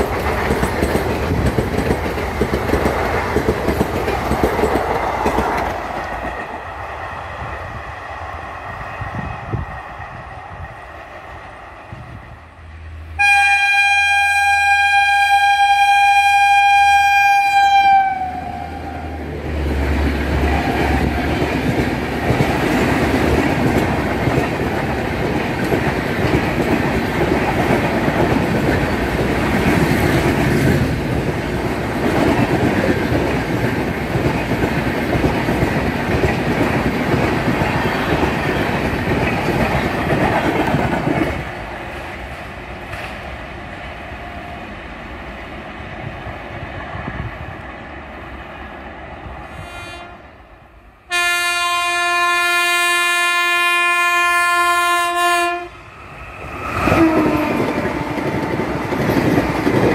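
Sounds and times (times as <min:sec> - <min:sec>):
wheels clickety-clack: 0:00.0 - 0:06.6, 0:19.7 - 0:43.2, 0:57.0 - 0:59.9
train coaches rolling past: 0:00.0 - 0:59.9
train horn blast: 0:13.1 - 0:19.2, 0:49.5 - 0:50.5, 0:51.1 - 0:55.8, 0:56.8 - 0:58.5.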